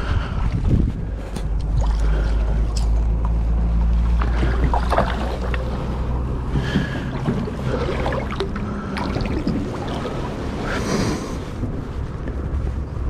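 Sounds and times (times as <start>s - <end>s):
wind buffeting microphone: 0.0s - 13.0s
fish splashing in water: 1.4s - 3.2s, 4.0s - 11.5s.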